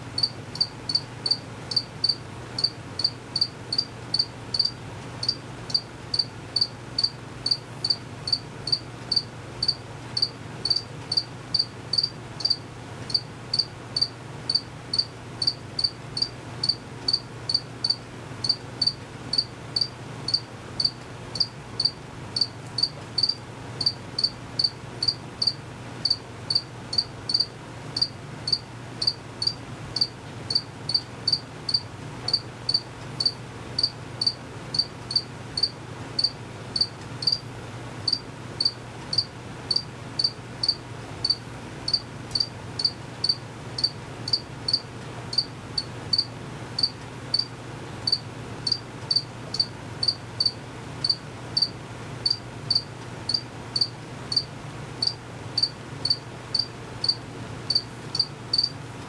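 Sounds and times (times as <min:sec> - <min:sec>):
cricket chirping: 0:00.2 - 0:37.4, 0:38.1 - 0:47.5, 0:48.1 - 0:58.8.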